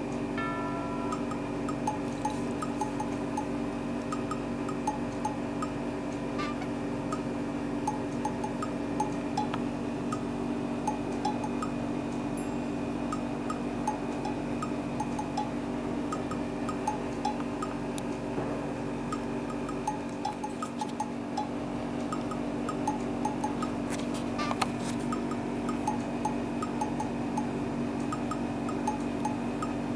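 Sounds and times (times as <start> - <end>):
plinking notes: 0.4 - 5.8.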